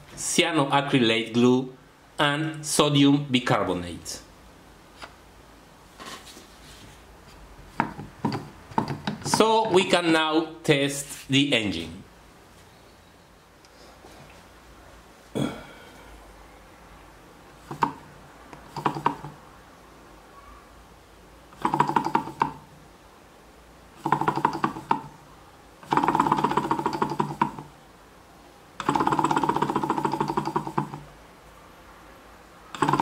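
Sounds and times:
engine rattling clatter with buzz: 32.8s - 33.0s.

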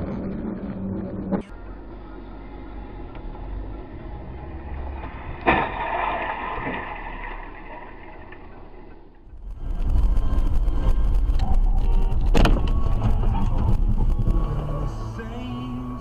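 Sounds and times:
in-car road noise: 0.0s - 16.0s
car crash impact: 5.4s - 8.4s.

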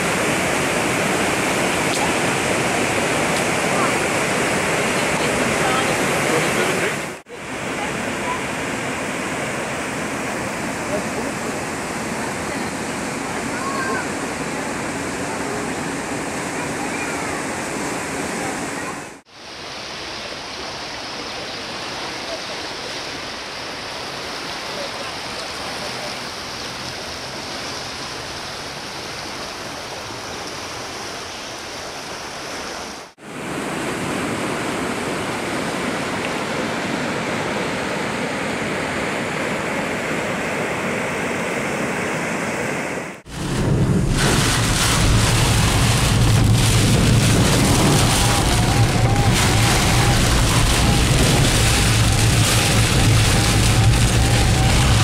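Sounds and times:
rain on a windscreen: 0.0s - 8.4s, 43.3s - 55.0s
floodwater rushing: 0.0s - 55.0s.

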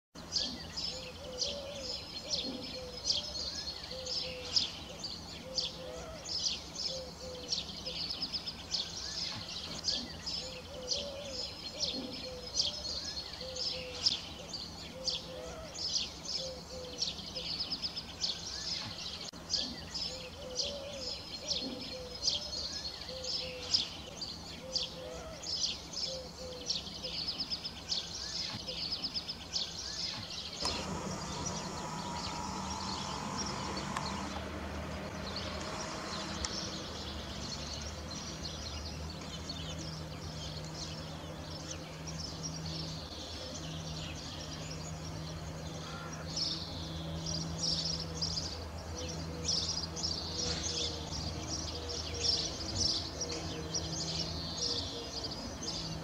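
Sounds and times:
small birds chirping: 0.2s - 56.0s
bird cooing: 0.4s - 8.3s, 9.8s - 17.7s, 19.5s - 23.9s, 24.5s - 27.5s, 54.6s - 55.8s.

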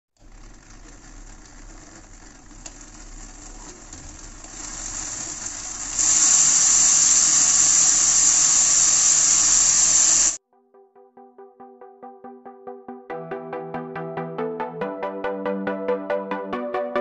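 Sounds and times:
propeller whirring: 0.2s - 10.4s
small electric motors humming: 0.2s - 10.4s.

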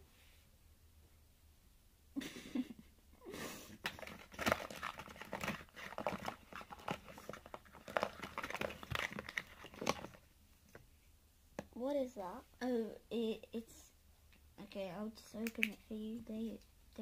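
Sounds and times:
clicks and rustles of containers: 3.8s - 10.9s.

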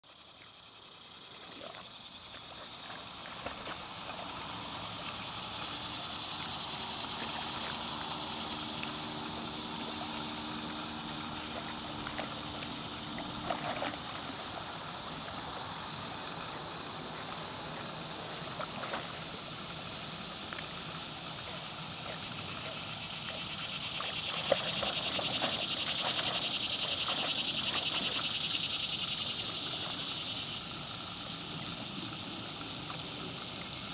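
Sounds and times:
insects chorus: 0.0s - 33.9s.

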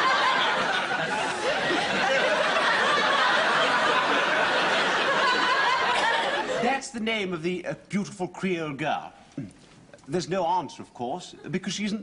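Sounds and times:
audience laughing: 0.0s - 6.6s.

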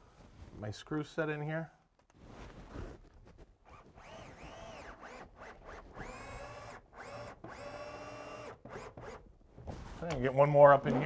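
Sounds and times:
cordless drill driving screws: 4.0s - 9.3s.

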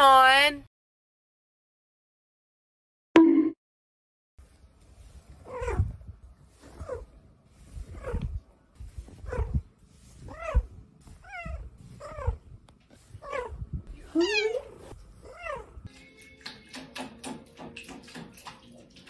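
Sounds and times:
cat meowing: 13.2s - 15.8s.

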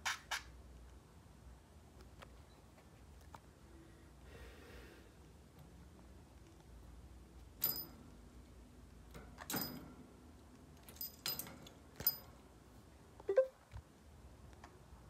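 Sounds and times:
metal clinks of cage toys: 7.6s - 8.1s, 9.1s - 10.0s, 10.8s - 12.4s.

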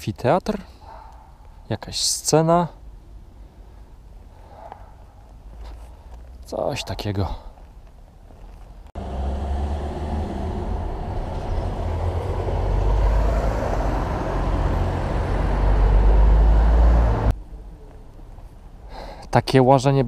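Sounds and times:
vehicle engine rumbling: 7.3s - 18.9s.

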